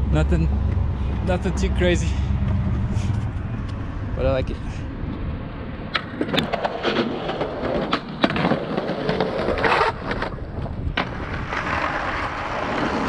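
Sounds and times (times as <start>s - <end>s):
skateboard wheels rumbling: 4.8s - 13.0s
skateboard clacks: 5.9s - 13.0s.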